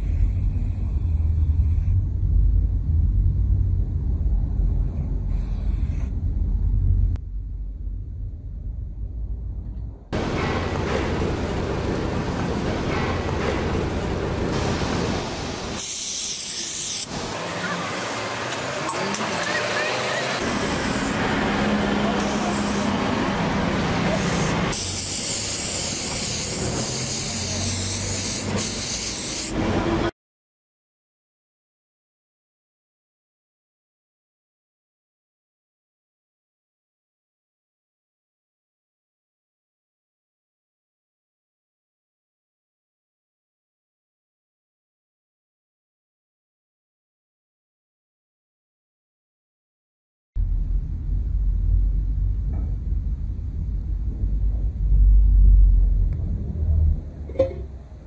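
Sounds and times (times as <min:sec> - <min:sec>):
steady low rumble: 0:00.0 - 0:15.8, 0:50.4 - 0:58.0
aerosol spray can hissing: 0:15.8 - 0:17.1, 0:22.2 - 0:22.9, 0:24.3 - 0:29.6.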